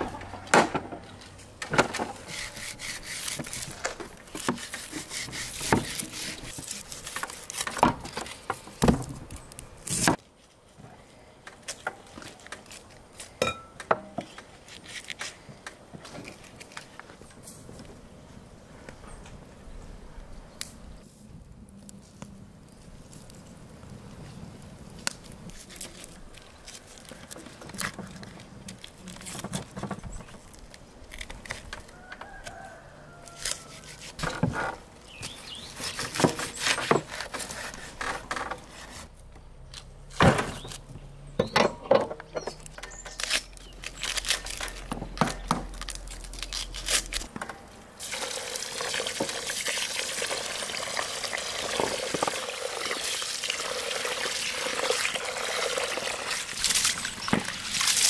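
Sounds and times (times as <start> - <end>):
water pouring into a pot: 48.0 - 58.0.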